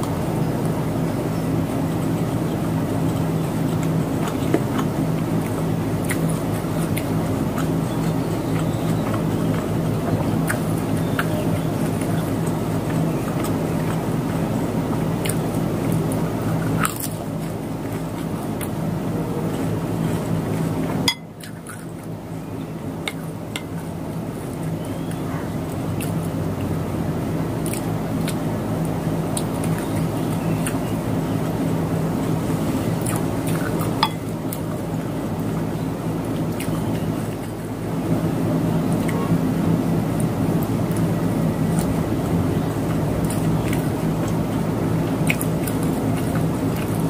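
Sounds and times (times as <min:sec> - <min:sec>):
faint chewing clicks: 0:00.0 - 0:26.8, 0:27.4 - 0:38.2, 0:38.8 - 0:39.4, 0:40.1 - 0:47.0
low machine hum: 0:00.0 - 0:47.0
spoon clinking ceramic bowl: 0:21.1 - 0:21.3, 0:34.0 - 0:34.3.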